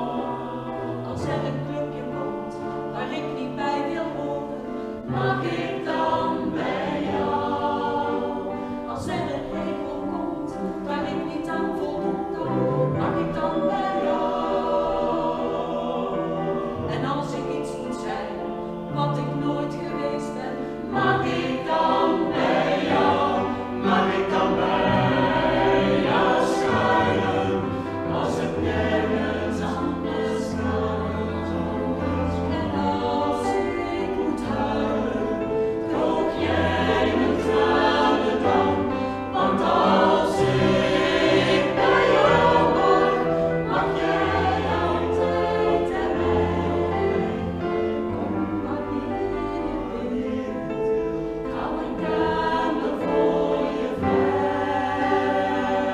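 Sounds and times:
mixed vocal group singing: 0.0 - 55.9.

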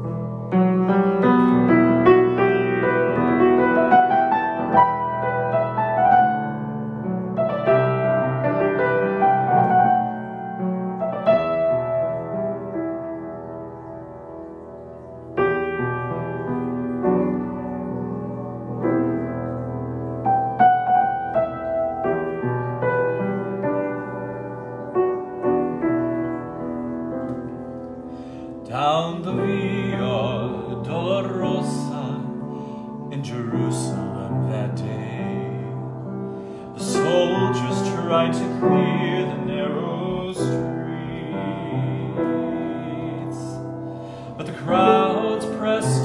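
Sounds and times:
grand piano chords and melody: 0.0 - 46.0
man singing: 28.7 - 32.5, 33.1 - 35.9, 36.8 - 43.7, 44.3 - 46.0.

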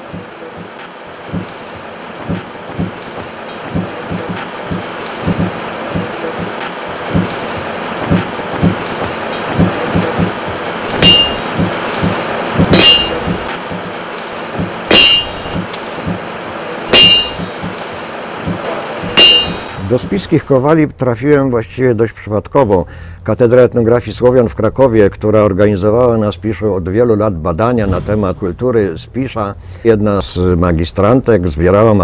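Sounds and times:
forge fire crackling: 0.0 - 20.8
hammer ringing on anvil: 10.9 - 11.7, 12.7 - 13.6, 14.9 - 15.7, 16.9 - 17.7, 19.0 - 19.8.

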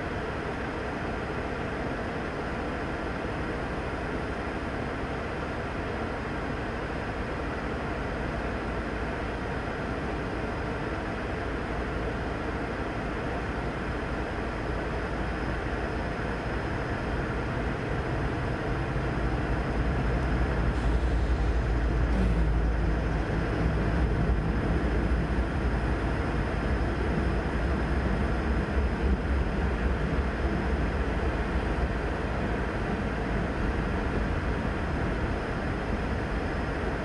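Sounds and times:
diesel locomotive engine rumble: 0.0 - 37.0.

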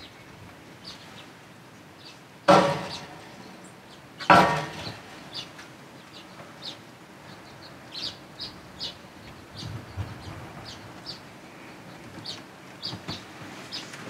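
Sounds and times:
loud metallic clangs: 2.5 - 3.3, 4.2 - 5.4.

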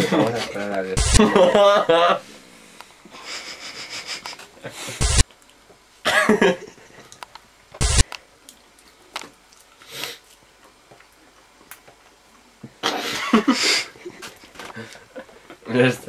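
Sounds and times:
man stifled laughter: 1.2 - 2.3, 3.1 - 5.0, 12.8 - 14.4.

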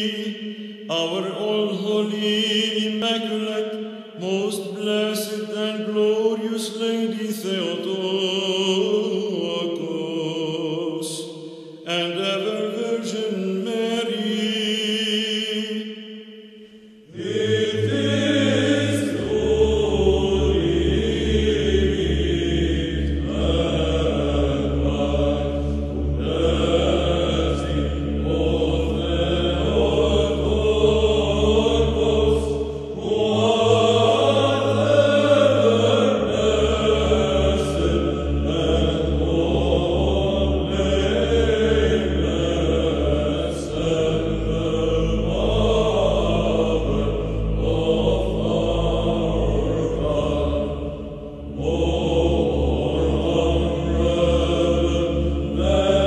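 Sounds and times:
chanted hymn vocal line: 0.0 - 56.0
sustained low drone: 17.1 - 56.0.

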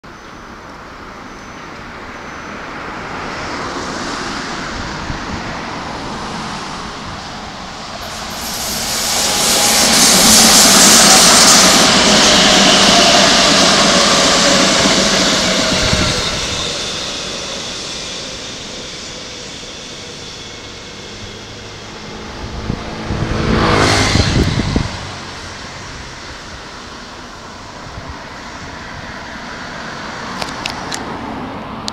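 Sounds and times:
train wheels rushing on rail: 1.1 - 31.9
train whine falling in pitch: 5.8 - 27.7.

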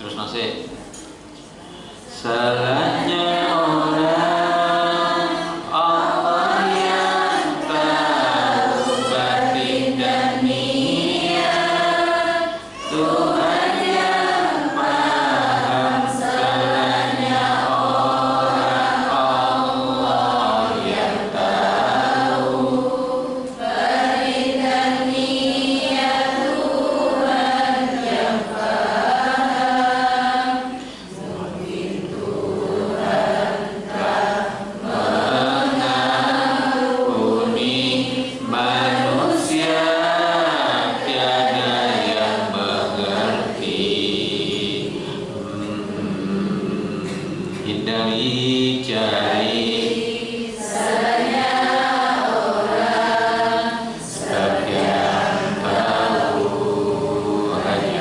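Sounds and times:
man chanting into a microphone: 2.1 - 7.0, 7.7 - 11.2, 37.1 - 49.9.

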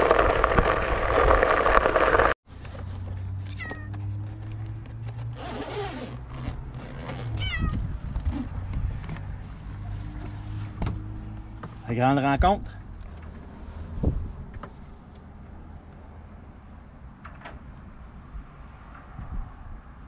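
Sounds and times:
cat meowing: 7.4 - 7.9.

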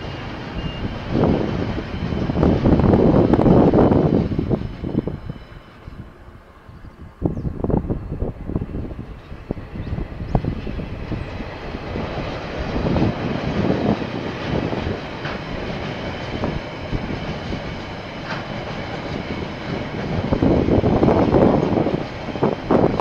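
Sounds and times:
diesel locomotive passing: 0.0 - 23.0
freight wagons rolling on rails: 8.5 - 23.0.

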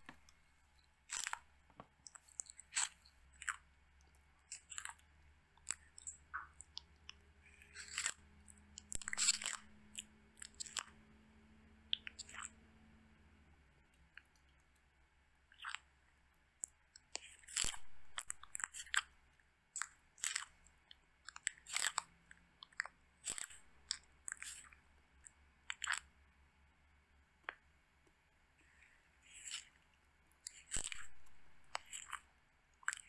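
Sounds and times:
tortoises crunching dry food: 1.0 - 11.0, 16.6 - 19.1, 19.7 - 26.1, 28.6 - 33.0.

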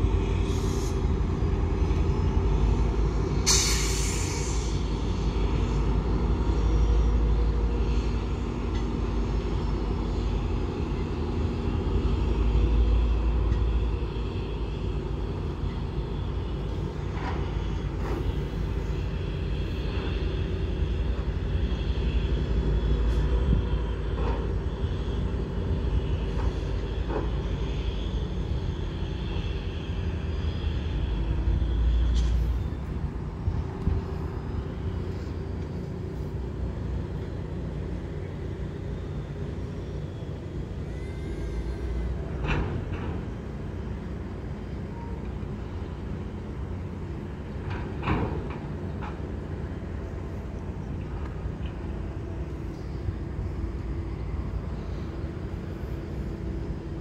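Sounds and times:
train rumble and engine drone: 0.0 - 57.0
short hiss: 3.5 - 4.7.

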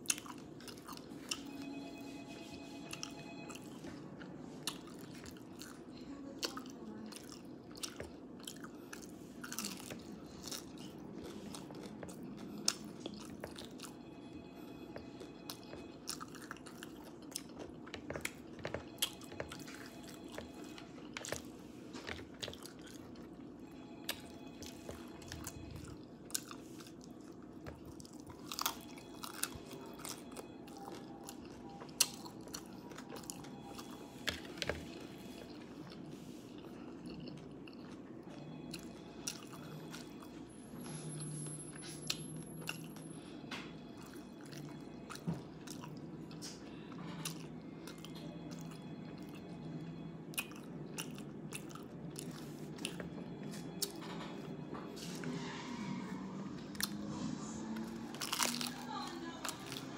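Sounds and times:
low hum: 7.4 - 59.9
crunchy taco chewing: 15.4 - 38.0, 56.7 - 59.9.

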